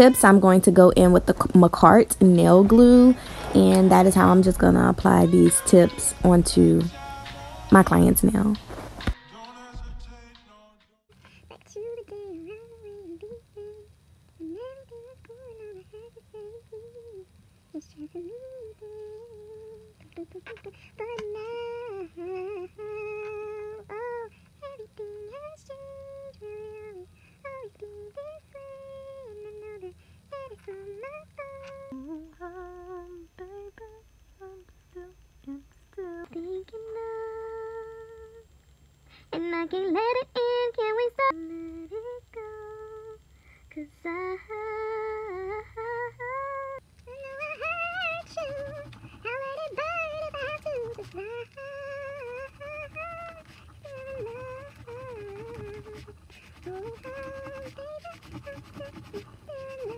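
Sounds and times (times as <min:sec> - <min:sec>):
woman humming: 0:00.0 - 0:07.0, 0:29.1 - 0:38.5, 0:41.3 - 0:59.9.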